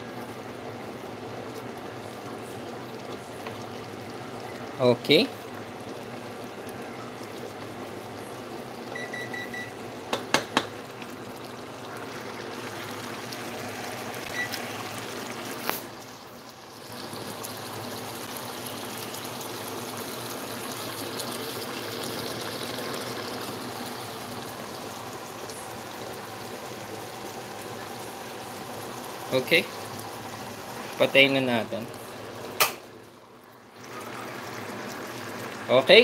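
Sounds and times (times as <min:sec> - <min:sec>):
pot simmering with bubbling hiss: 0:00.0 - 0:36.0
wooden spoon knocking on pot: 0:10.1 - 0:10.8.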